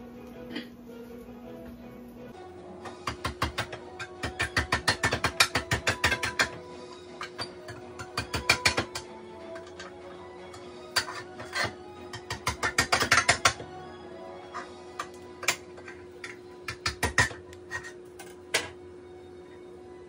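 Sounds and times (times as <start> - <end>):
utensil clinking on dishes: 2.9 - 13.6.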